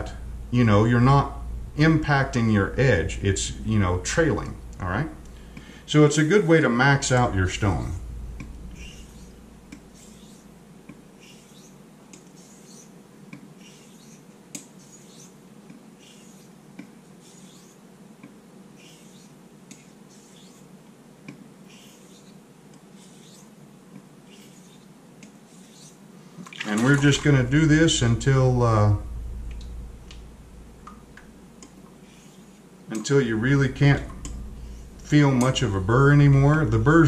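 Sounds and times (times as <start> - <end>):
razor scraping on whetstone: 8.8 - 10.5, 11.2 - 12.9, 13.6 - 15.4, 16.0 - 16.5, 17.2 - 17.8, 18.8 - 20.7, 21.7 - 22.4, 23.0 - 23.5, 24.3 - 24.9, 25.5 - 26.0, 32.0 - 32.6.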